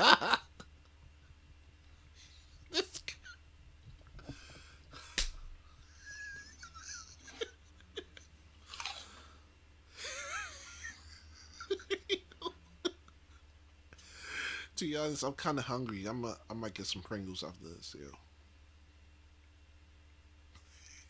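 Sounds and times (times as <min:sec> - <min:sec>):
man wheezing laughter: 0:05.8 - 0:08.3, 0:10.0 - 0:13.0.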